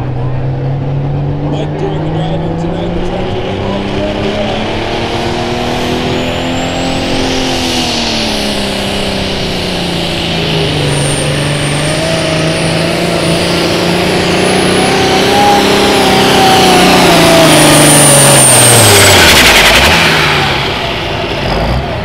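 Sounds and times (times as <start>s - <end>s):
tractor diesel engine working hard: 0.0s - 22.0s
high turbo whistle: 6.0s - 20.8s.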